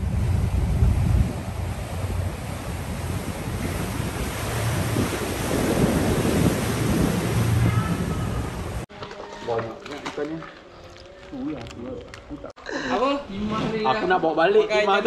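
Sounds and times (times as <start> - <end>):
wind buffeting microphone: 0.0 - 8.9
sea water washing: 0.0 - 12.4.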